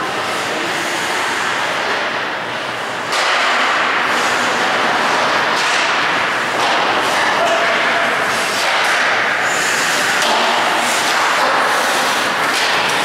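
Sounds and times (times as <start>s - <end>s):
echoing rink noise: 0.0s - 13.0s
hockey sticks and puck cracking: 5.4s - 13.0s.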